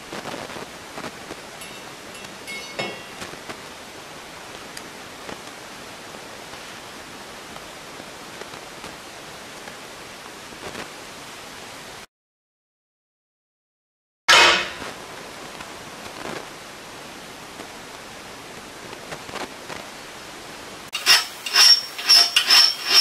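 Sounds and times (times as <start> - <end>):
steady background hiss: 0.0 - 12.0, 14.4 - 23.0
light metallic clinks: 1.6 - 3.3.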